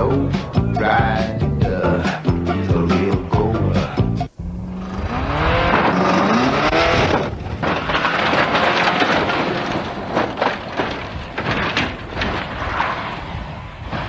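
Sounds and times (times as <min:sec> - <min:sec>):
car engine revving: 0:04.3 - 0:07.4
car crashing through brush: 0:05.1 - 0:14.0
sharp knocks and cracks: 0:05.6 - 0:12.9.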